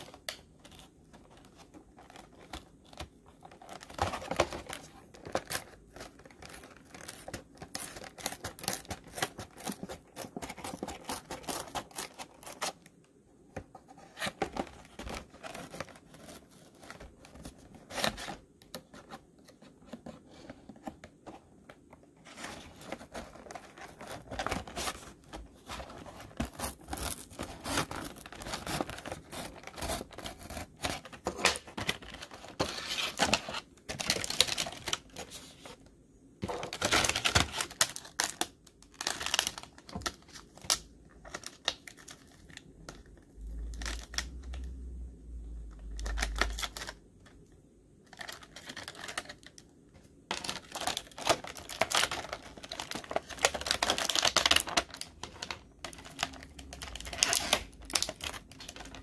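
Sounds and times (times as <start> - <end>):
plastic crinkling: 50.3 - 59.0.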